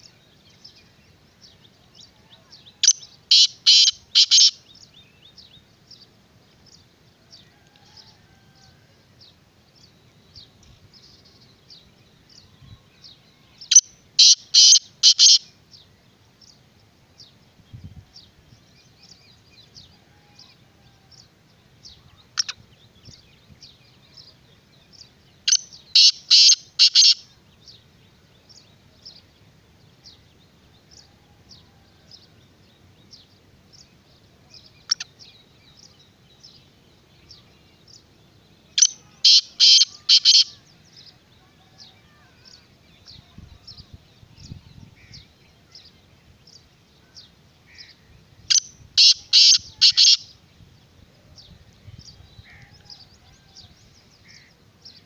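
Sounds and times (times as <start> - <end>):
faint high chirping of small birds: 0.0 - 55.0
harsh grating bird call: 3.3 - 4.6, 13.7 - 15.4, 25.5 - 27.2, 38.8 - 40.6, 47.7 - 50.3.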